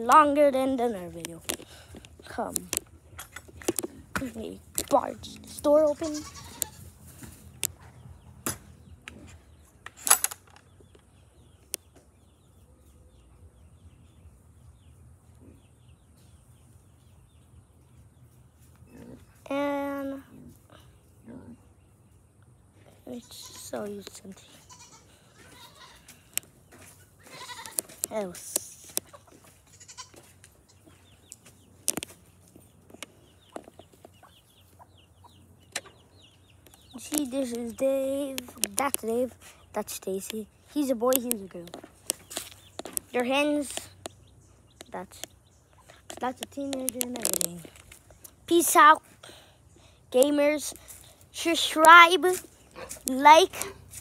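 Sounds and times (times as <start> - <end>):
chickens clucking: 0.0 - 9.9, 10.7 - 48.5
small birds chirping: 0.0 - 54.0
sharp knocks and rustles: 1.2 - 5.2.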